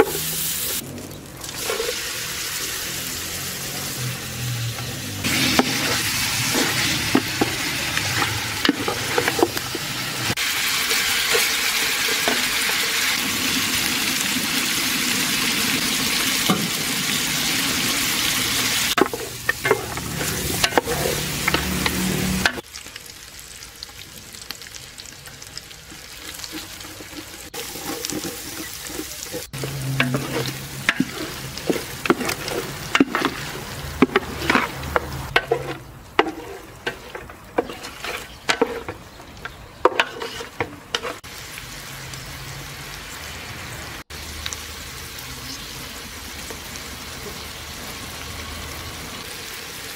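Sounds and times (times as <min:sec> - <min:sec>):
meat sizzling: 0:00.0 - 0:49.9.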